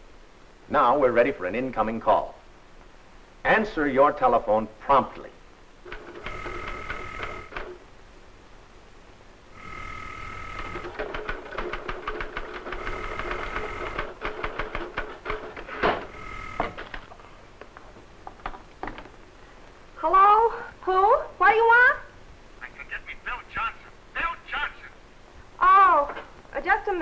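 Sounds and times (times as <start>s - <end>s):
telephone bell ringing: 6.0s - 7.6s, 9.6s - 11.0s, 12.8s - 14.2s, 16.1s - 16.8s
typewriter keys clattering: 10.9s - 12.8s.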